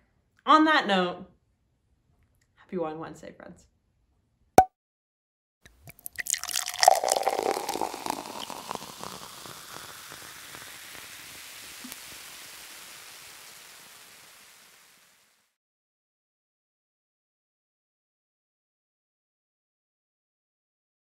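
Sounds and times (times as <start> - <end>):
liquid pouring with crackling pops: 5.7 - 15.6.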